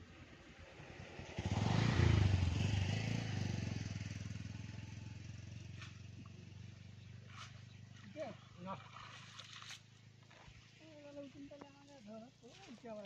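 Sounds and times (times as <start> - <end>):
passing vehicle engine: 0.0 - 8.1.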